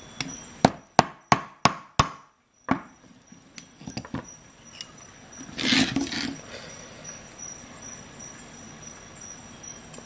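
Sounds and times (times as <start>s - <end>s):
hammer hitting nail: 0.6s - 2.9s.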